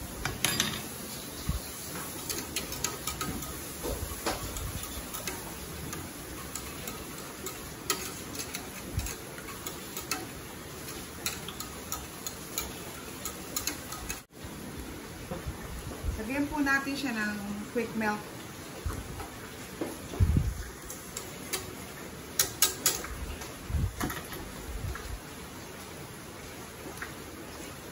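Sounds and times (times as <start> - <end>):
whisk clicking against pot: 2.1 - 14.2, 20.9 - 21.7, 22.4 - 23.1.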